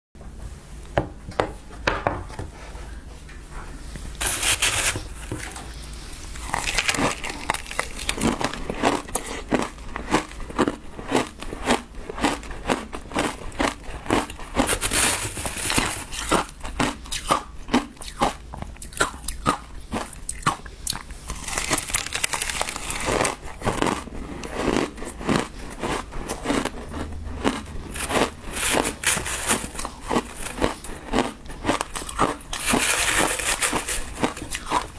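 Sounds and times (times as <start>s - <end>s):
spoon scraping ice: 4.2s - 5.3s, 14.1s - 16.5s, 27.9s - 34.9s
crunching and chewing ice: 4.2s - 34.9s.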